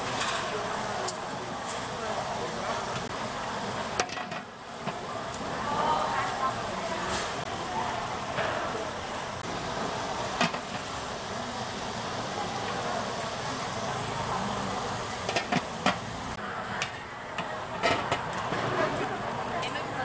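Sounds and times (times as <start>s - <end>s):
cooking pots hissing: 0.0s - 20.0s
metal pots and lids clinking: 4.0s - 5.0s, 10.4s - 10.9s, 15.3s - 16.0s, 17.4s - 18.3s.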